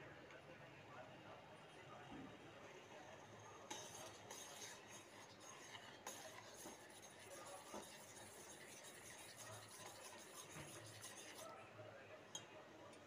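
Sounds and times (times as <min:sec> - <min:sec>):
metal spoon stirring in saucepan: 0:02.9 - 0:11.5.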